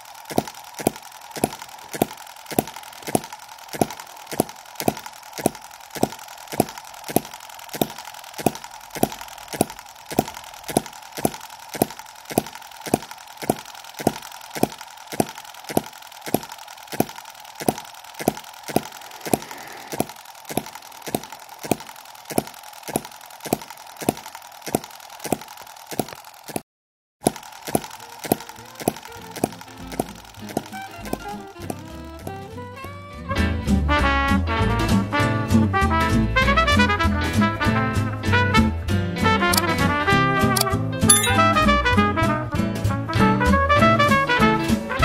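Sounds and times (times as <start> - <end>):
miniature engine running: 0.0 - 26.6, 27.2 - 33.8.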